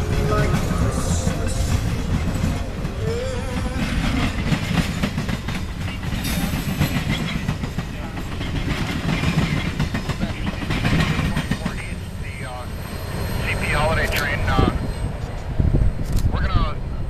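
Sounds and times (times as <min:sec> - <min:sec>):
wheels clicking over rail joints: 0:00.0 - 0:12.0
train cars rumbling past: 0:00.0 - 0:17.0.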